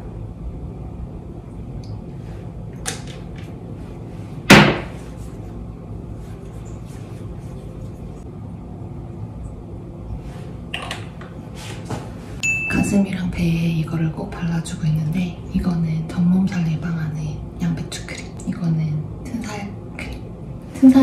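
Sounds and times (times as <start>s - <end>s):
steady low hum: 0.0s - 21.0s
sharp knock: 4.5s - 5.0s.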